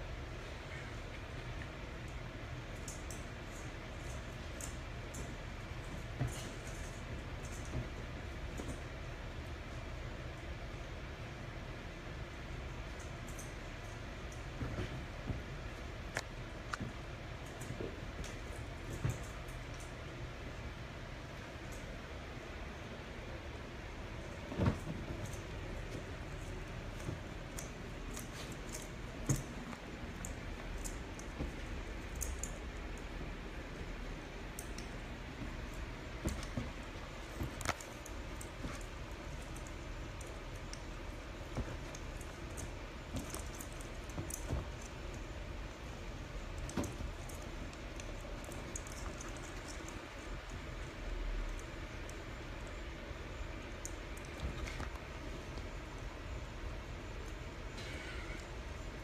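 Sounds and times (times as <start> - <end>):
room hiss: 0.0 - 59.0
soft rustling: 12.1 - 57.4.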